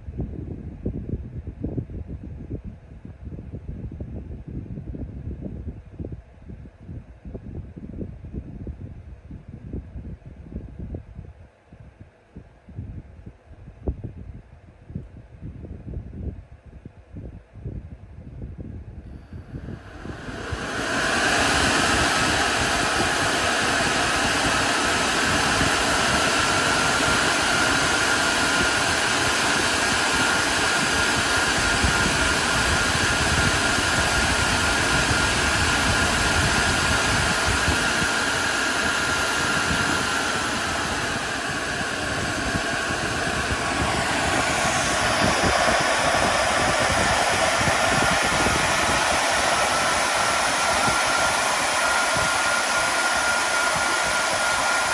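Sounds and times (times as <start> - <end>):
cooling fans spinning with whine: 18.2 - 54.9.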